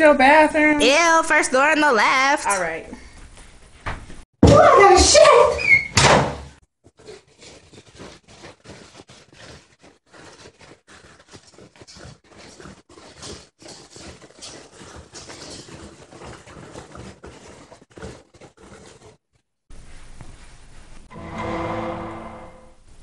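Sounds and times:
toilet paper crinkling: 0:06.9 - 0:19.2.

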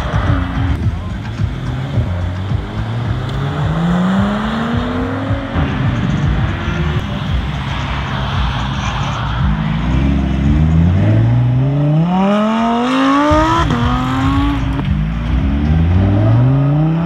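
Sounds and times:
sports car engine accelerating: 0:00.0 - 0:17.0.

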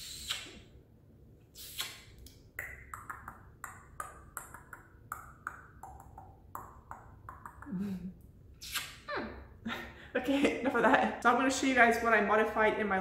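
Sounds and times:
breathy kisses: 0:00.0 - 0:00.7, 0:01.6 - 0:03.5, 0:08.6 - 0:09.1
short sharp kissing smacks: 0:00.0 - 0:00.7, 0:01.6 - 0:04.9, 0:08.6 - 0:09.1.

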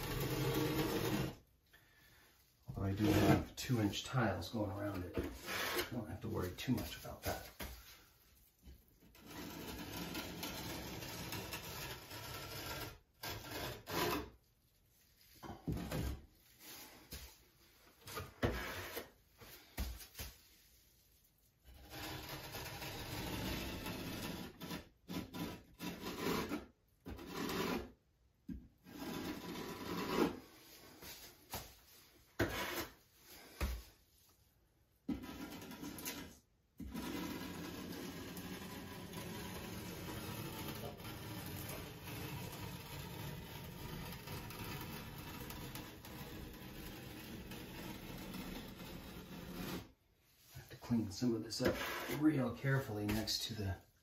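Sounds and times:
hand roller rolling over tiles: 0:00.0 - 0:01.4, 0:09.1 - 0:14.3, 0:35.1 - 0:49.9.

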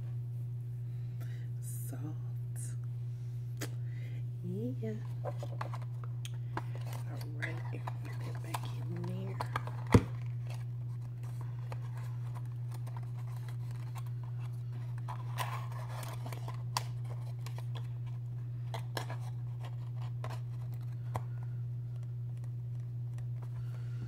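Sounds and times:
steady low hum: 0:00.0 - 0:24.0
packaging rustling: 0:05.0 - 0:21.4.

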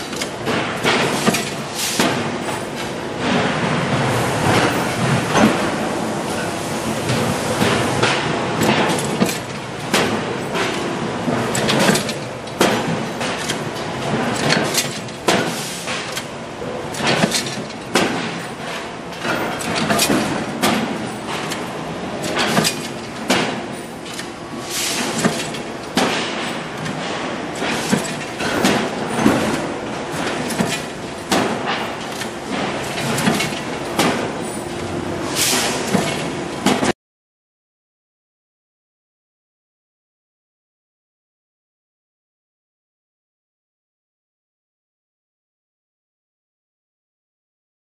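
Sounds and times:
steady factory din: 0:00.0 - 0:37.0.

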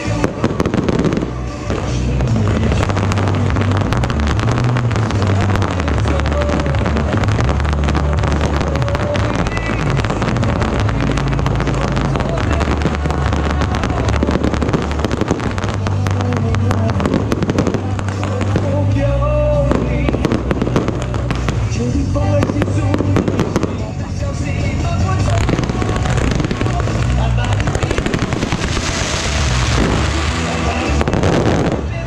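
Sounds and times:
fireworks crackling and banging: 0:00.0 - 0:32.0
low rumble: 0:00.0 - 0:32.0.

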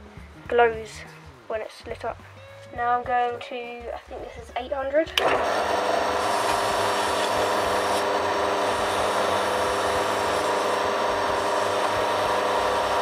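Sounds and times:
lathe motor hum: 0:05.2 - 0:13.0.

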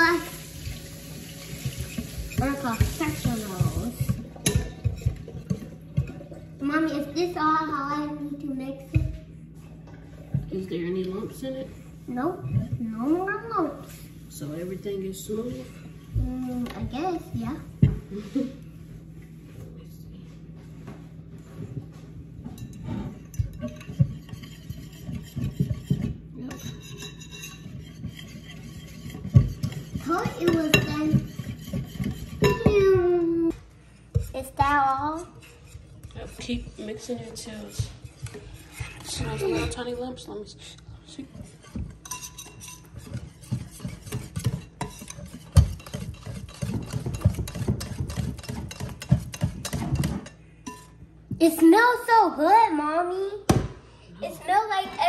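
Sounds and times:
whisk beating batter: 0:00.0 - 0:07.3, 0:22.6 - 0:40.4, 0:41.0 - 0:51.0
whisk clinking against glass: 0:22.6 - 0:32.8, 0:41.6 - 0:51.0.

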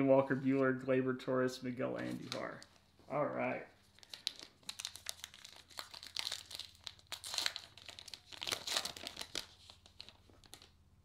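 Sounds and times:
wrapper tearing and crinkling: 0:03.8 - 0:10.8.

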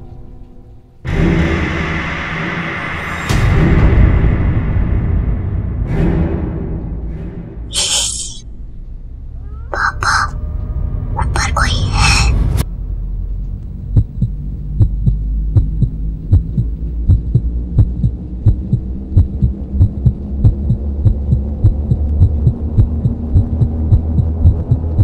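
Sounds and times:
low drone: 0:00.0 - 0:25.0
heartbeat thumps: 0:13.9 - 0:25.0.

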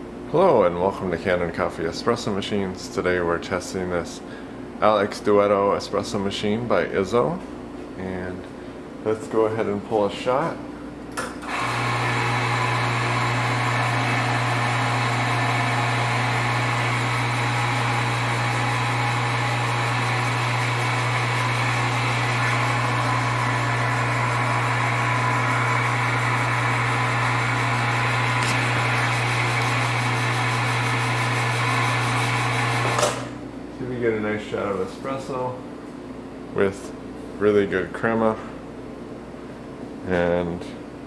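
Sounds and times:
espresso machine pump humming: 0:11.4 - 0:33.4.

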